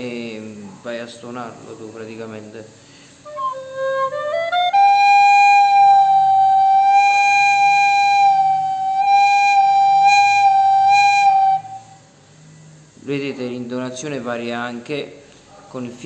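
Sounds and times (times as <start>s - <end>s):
recorder notes: 3.3s - 12.9s.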